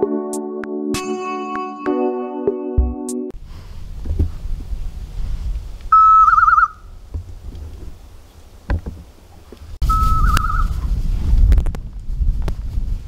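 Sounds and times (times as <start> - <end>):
wind rumble on microphone: 3.4 - 13.0.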